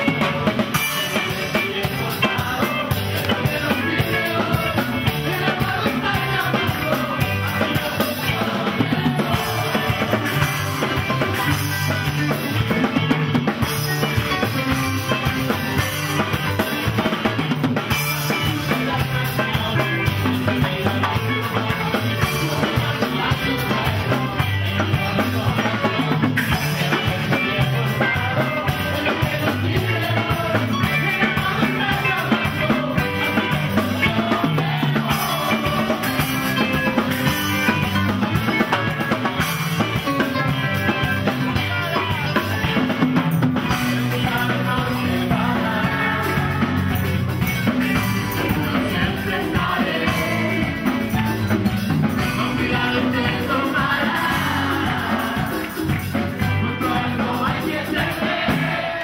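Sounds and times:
rock band music: 0.0 - 59.0.

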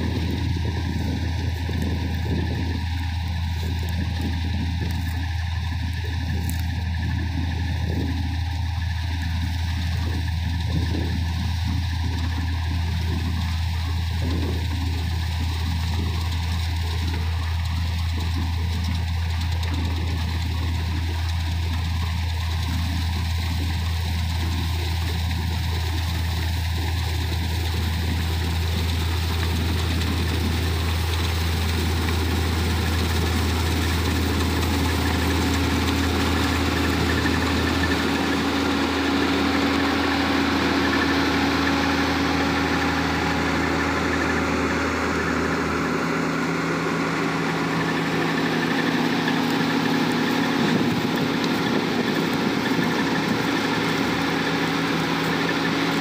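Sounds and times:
combine harvester running: 0.0 - 56.0.

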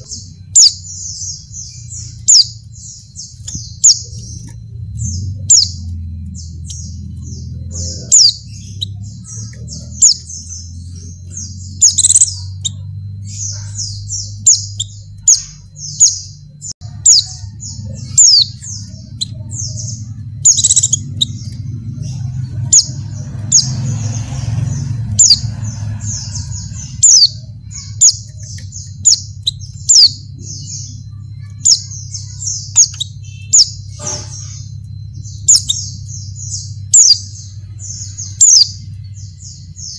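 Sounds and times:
bird chirping: 0.0 - 39.9
sharp down-slurred bird notes: 0.0 - 39.9.

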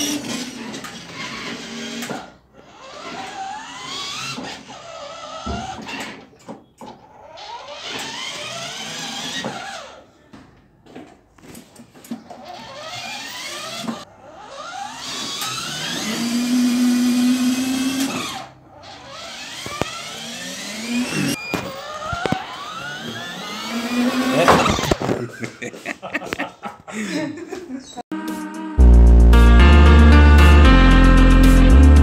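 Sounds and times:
electric motors whining: 0.0 - 6.3, 7.0 - 10.0, 12.3 - 25.1.

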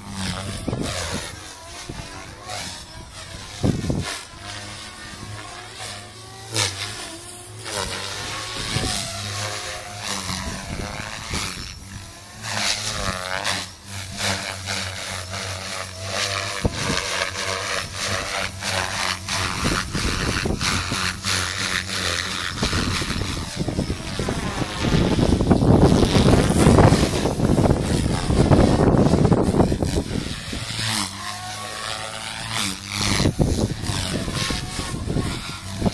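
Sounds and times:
electric motor whine: 0.0 - 35.9
rotor blades whooshing: 0.0 - 35.9.

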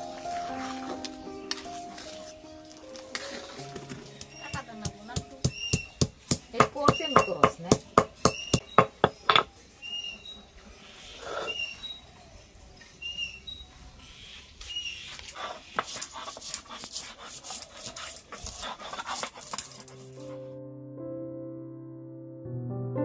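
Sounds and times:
wooden block pounding on board: 3.9 - 9.5.

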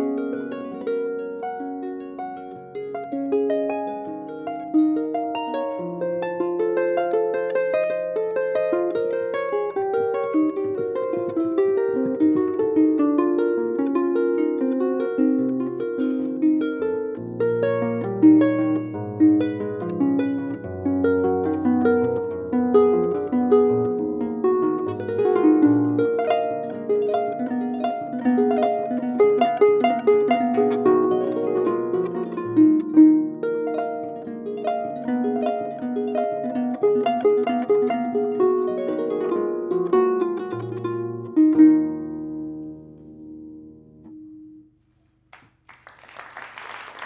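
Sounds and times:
harp playing quick runs: 15.9 - 33.2
audience applause: 45.4 - 47.0.

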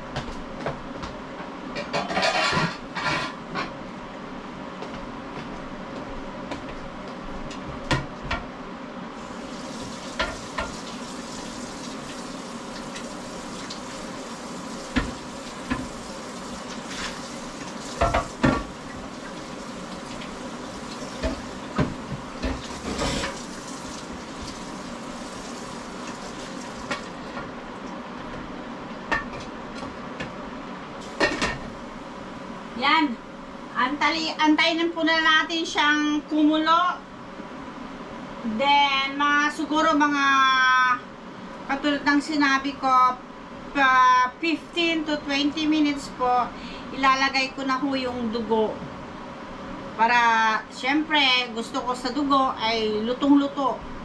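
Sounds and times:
pork sizzling in a pan: 9.2 - 27.3, 31.0 - 31.8.

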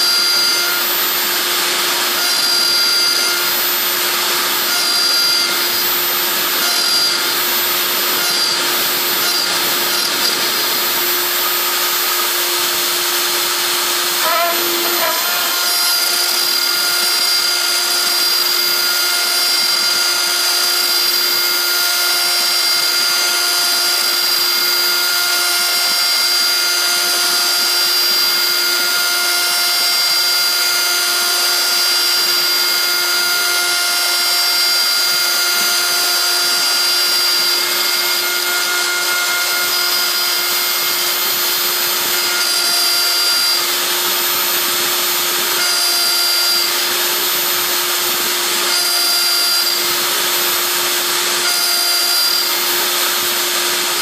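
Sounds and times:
end mill cutting metal: 0.0 - 54.0
milling spindle whine: 0.0 - 54.0.

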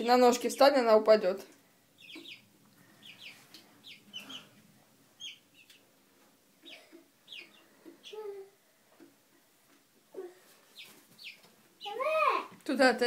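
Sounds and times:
chicks peeping: 1.9 - 9.3, 10.5 - 12.0.

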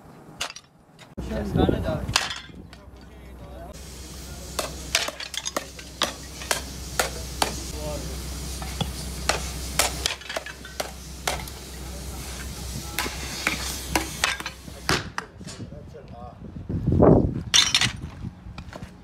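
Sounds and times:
steady low hum: 0.0 - 14.9.

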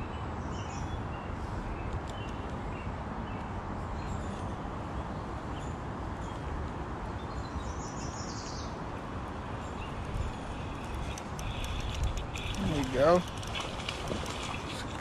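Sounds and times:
birds chirping: 7.1 - 15.0.

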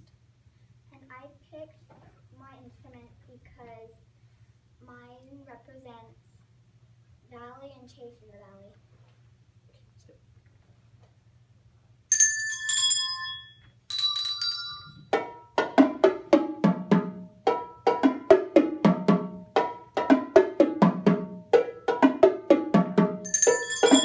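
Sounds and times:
handbells ringing: 12.1 - 15.5, 23.2 - 24.0
drum hits: 14.8 - 24.0.

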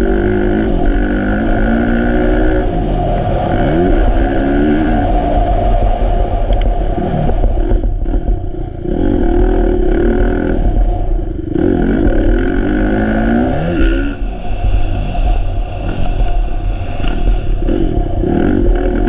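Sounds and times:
motocross bike engine revving: 0.0 - 2.7, 7.0 - 14.3, 17.0 - 19.0.

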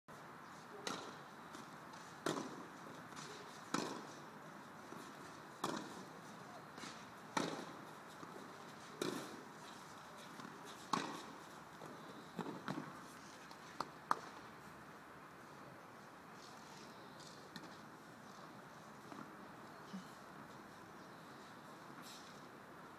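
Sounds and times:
tennis ball struck by rackets: 0.8 - 4.2, 4.9 - 6.0, 6.8 - 8.4, 9.0 - 9.4, 10.4 - 11.3, 12.4 - 12.9.

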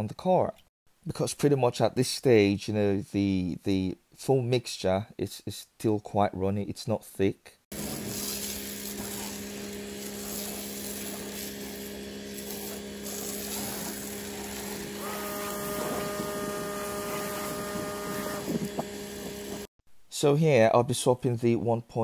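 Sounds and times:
pressure washer motor hum: 7.7 - 19.7
foam spray hiss: 7.8 - 18.1
high steady tone: 11.8 - 19.7.

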